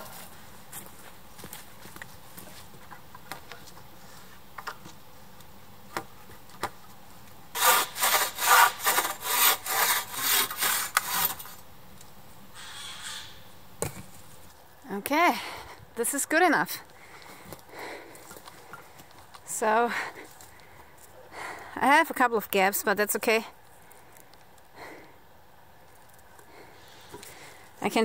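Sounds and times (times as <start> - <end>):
saw cutting wood: 7.5 - 11.6, 12.6 - 13.4.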